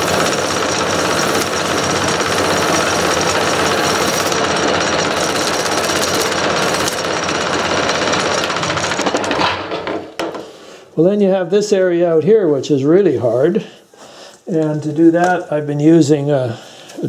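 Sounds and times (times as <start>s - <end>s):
sanding belt rasping on wood lathe: 0.0s - 9.0s.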